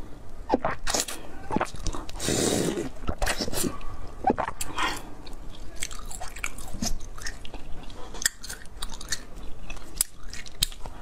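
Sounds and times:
chewing crunchy ice: 4.3 - 11.0.

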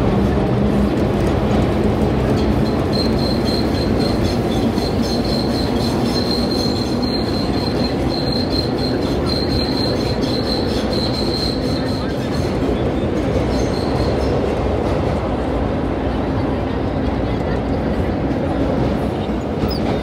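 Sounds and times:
subway car rumbling on track: 0.0 - 20.0
high-pitched wheel squeal: 2.6 - 12.5.

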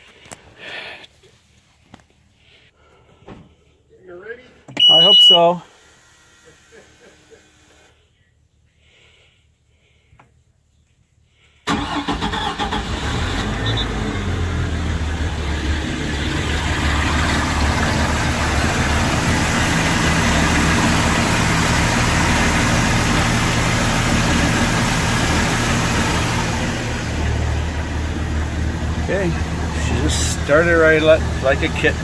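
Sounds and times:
boat engine starting and idling: 11.7 - 32.0.

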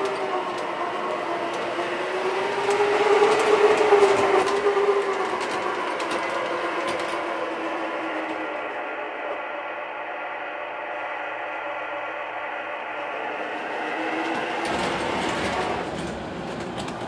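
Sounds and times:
model train motor whine: 0.0 - 16.9
clicking of train wheels: 0.0 - 17.0.

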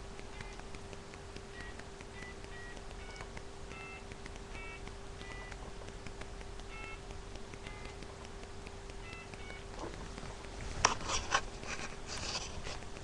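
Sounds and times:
steady low hum: 0.0 - 13.0
telephone keypad beeps: 1.5 - 5.6, 6.7 - 8.0.

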